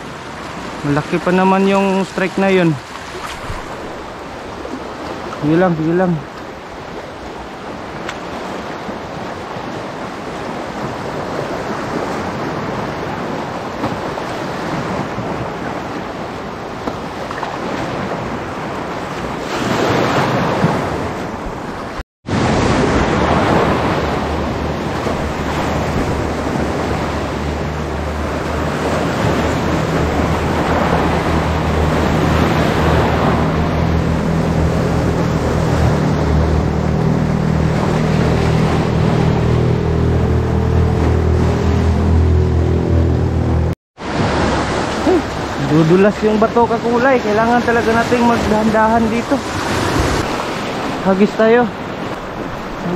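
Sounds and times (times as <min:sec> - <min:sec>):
waves on rocky shore: 0:00.0 - 0:52.9
wind buffeting microphone: 0:06.7 - 0:46.2.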